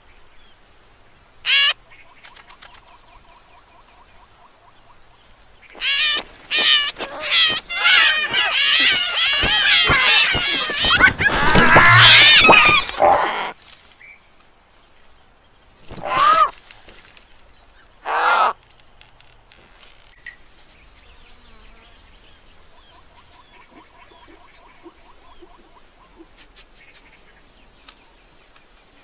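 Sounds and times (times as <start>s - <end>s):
faint outdoor ambience: 0.0s - 29.0s
cartoon vultures squawking: 1.5s - 1.8s, 5.8s - 13.6s, 15.9s - 16.5s, 18.0s - 18.6s
hoarse caws: 5.8s - 13.6s, 15.9s - 16.5s, 18.0s - 18.6s.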